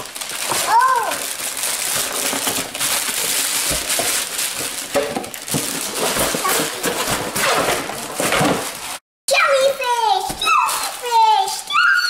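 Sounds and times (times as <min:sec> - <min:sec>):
packaging rustling and crinkling: 0:00.0 - 0:09.0, 0:10.4 - 0:11.6
boxes knocking: 0:03.6 - 0:08.8.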